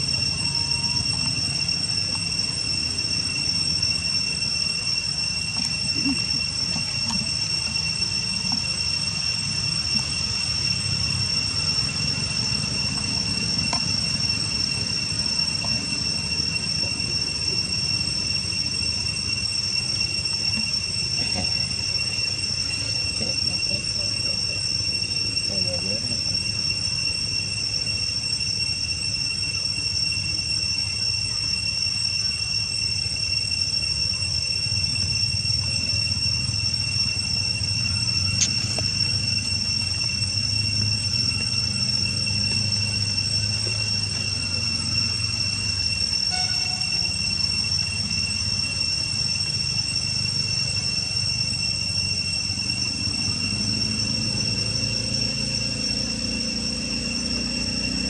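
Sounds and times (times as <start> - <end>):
high two-pitch whine: 0.0 - 58.0.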